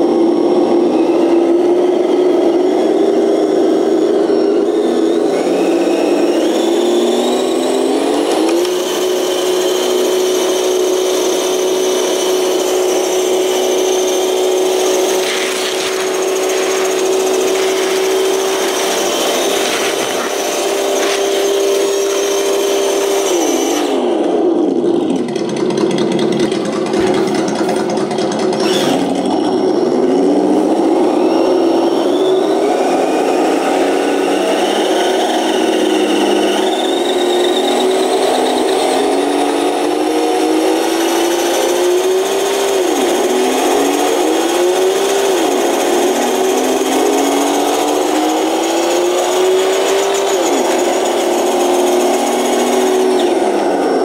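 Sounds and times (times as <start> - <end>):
simulated truck engine from speakers: 0.0 - 54.0.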